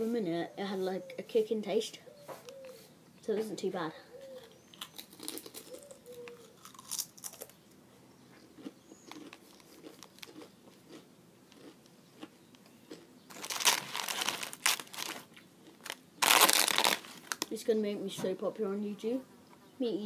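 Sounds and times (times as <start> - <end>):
crisps being crunched: 4.7 - 7.6, 8.6 - 17.5
foil crisp packet crinkling: 13.3 - 17.5.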